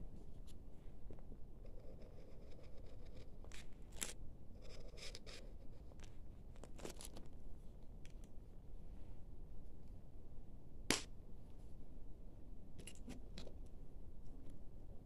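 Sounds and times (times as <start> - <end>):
highlighter rubbing across paper: 4.6 - 5.7.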